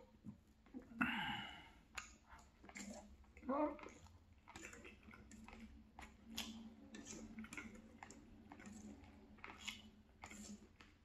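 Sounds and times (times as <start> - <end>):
mouth chewing food: 0.0 - 11.0.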